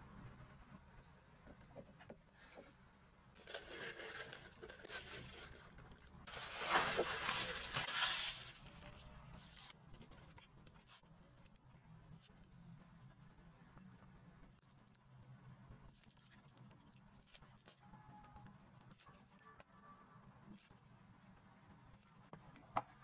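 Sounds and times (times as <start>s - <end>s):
plastic bag rustling: 3.4s - 9.1s.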